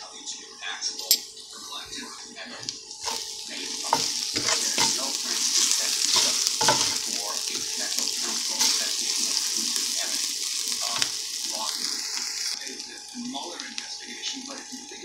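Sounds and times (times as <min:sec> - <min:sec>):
onions sizzling in hot oil: 0:02.5 - 0:15.0
wooden spatula scraping pan: 0:03.0 - 0:08.9.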